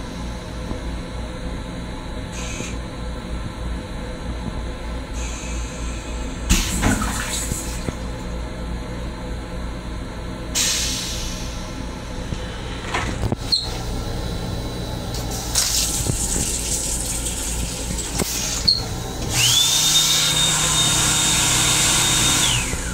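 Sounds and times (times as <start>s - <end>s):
motor high whine: 4.8s - 22.9s
toilet flush hissing rushes: 6.5s - 7.9s, 15.3s - 22.9s.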